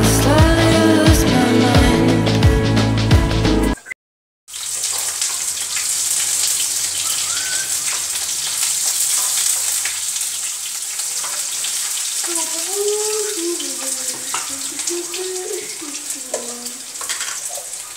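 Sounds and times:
food sizzling in hot oil: 4.5s - 17.9s.

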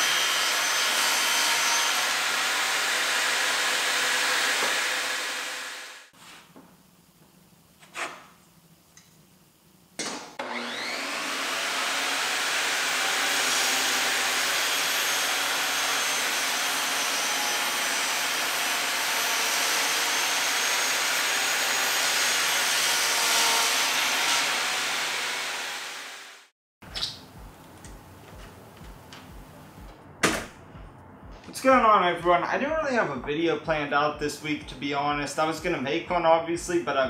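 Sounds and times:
table saw cutting wood: 0.0s - 6.1s, 10.3s - 26.5s.

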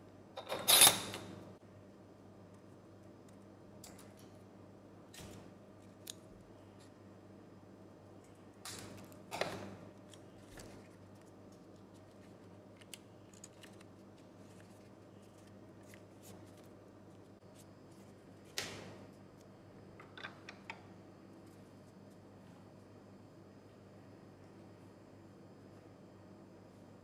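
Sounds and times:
paper crinkling: 10.0s - 17.2s
paper rustling: 10.3s - 16.7s.

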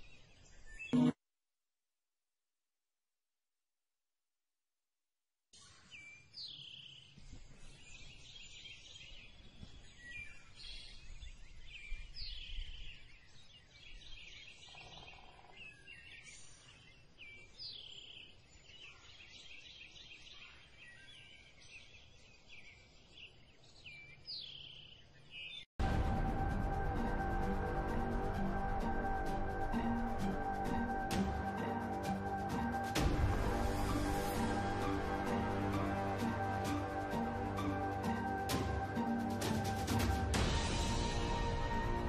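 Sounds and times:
birds chirping: 0.0s - 1.2s, 5.6s - 25.7s
low rumble: 25.8s - 31.7s.

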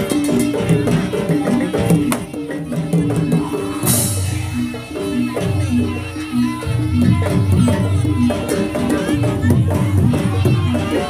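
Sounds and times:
gamelan tuned struck notes: 0.0s - 11.0s.

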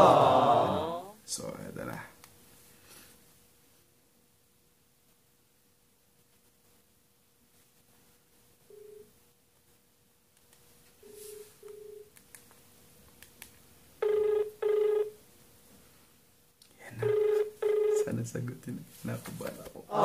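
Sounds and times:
phone ringback tone: 8.7s - 9.1s, 11.0s - 12.1s, 14.0s - 15.2s, 17.0s - 18.1s.

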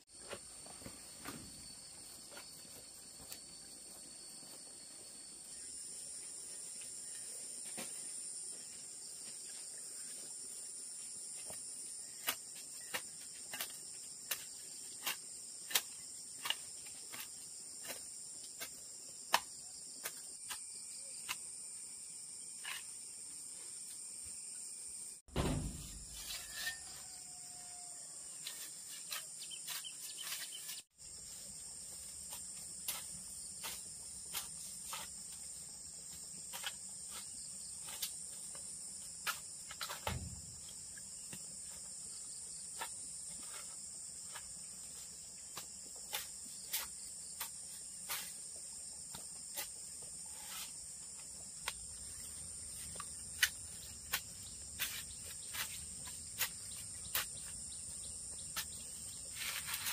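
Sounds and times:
crickets and insects chirping: 0.0s - 59.9s
dull thump: 25.3s - 26.2s, 40.0s - 40.6s.

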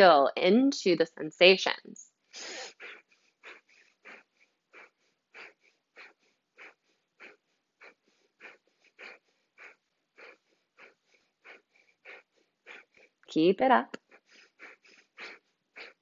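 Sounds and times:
faint quick inhales: 2.4s - 13.2s
forceful nasal exhales: 2.4s - 13.2s, 14.1s - 16.0s.

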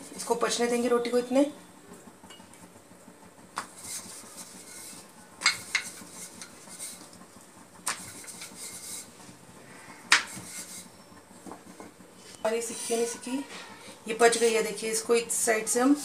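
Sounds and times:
rolling pin rubbing dough: 3.6s - 16.0s
rolling pin knocking on board: 10.1s - 10.5s.

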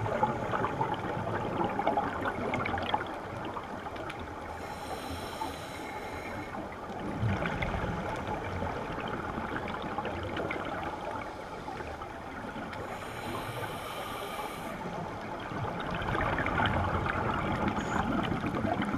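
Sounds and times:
exhaled bubbles gurgling: 0.0s - 18.9s
regulator inhale hiss: 4.5s - 6.7s, 12.8s - 15.0s.

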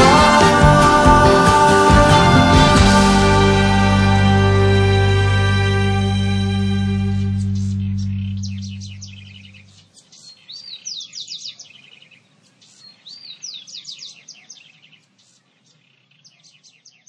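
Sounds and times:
song chord: 0.0s - 9.7s
songbirds chirping: 0.0s - 17.0s.

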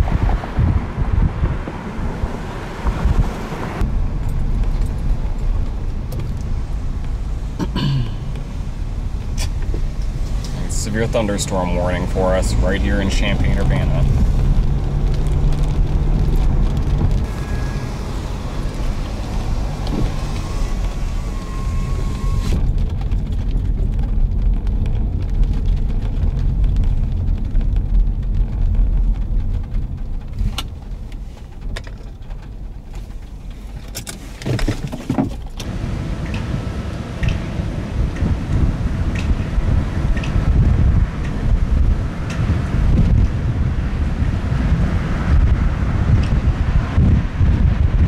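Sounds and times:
car engine and road rumble: 0.0s - 48.0s
road hiss: 17.2s - 22.6s.

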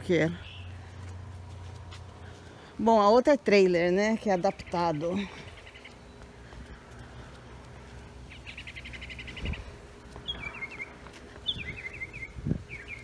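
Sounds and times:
songbird trilling and chirping: 0.3s - 0.8s, 8.3s - 13.0s.

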